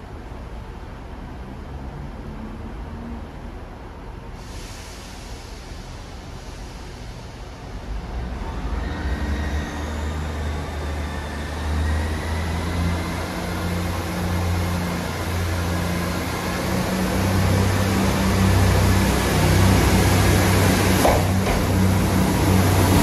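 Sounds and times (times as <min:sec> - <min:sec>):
broad hiss: 0:04.4 - 0:07.6
diesel engines droning: 0:07.7 - 0:23.0.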